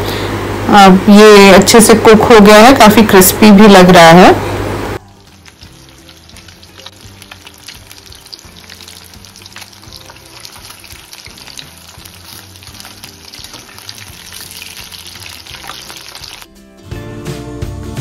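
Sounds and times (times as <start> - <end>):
fish deep-frying in oil: 5.0 - 16.5.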